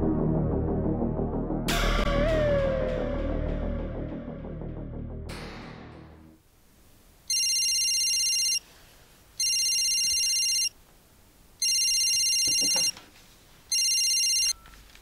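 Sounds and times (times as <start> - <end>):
background music: 0.0 - 6.4
mobile phone ringing: 7.3 - 8.6, 9.4 - 10.8, 11.6 - 13.0, 13.7 - 14.8.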